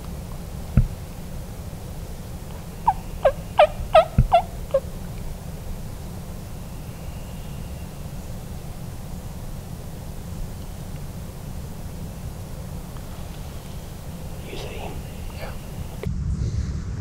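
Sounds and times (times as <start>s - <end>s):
turkey gobbling: 2.4s - 5.3s.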